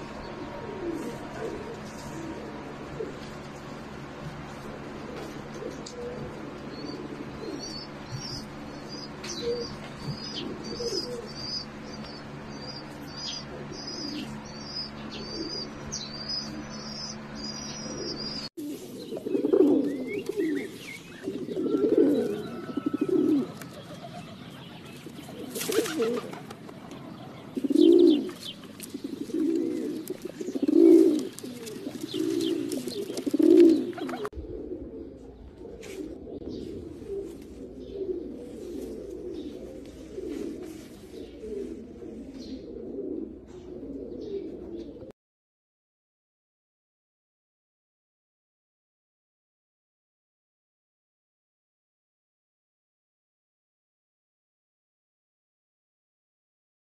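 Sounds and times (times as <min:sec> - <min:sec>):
steady low hum: 0:00.0 - 0:22.6, 0:23.2 - 0:45.1
pigeons cooing: 0:00.0 - 0:45.1
small birds chirping: 0:06.6 - 0:22.4, 0:23.5 - 0:34.3, 0:35.3 - 0:42.8.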